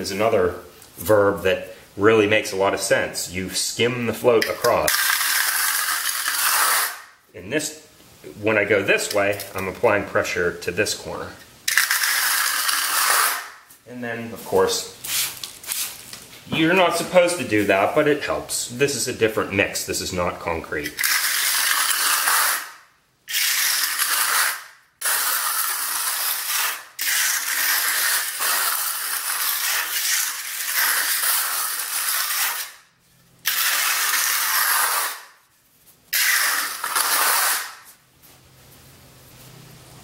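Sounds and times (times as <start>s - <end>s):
hand float scraping mortar: 4.4s - 7.0s, 11.7s - 13.5s.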